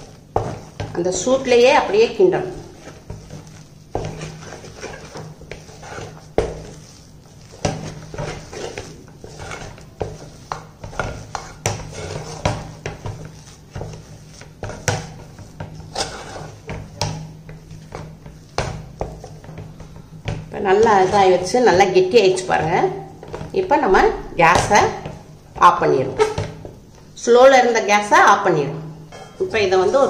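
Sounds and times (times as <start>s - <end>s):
spoon scraping a steel pot: 0.0s - 16.8s.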